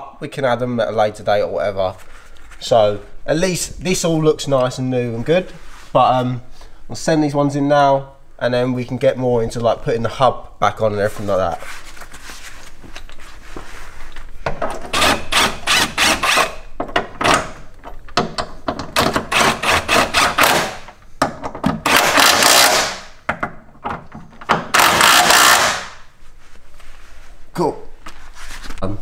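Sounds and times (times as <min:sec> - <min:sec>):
impact wrench hammering: 0:18.2 - 0:23.6, 0:24.4 - 0:26.0.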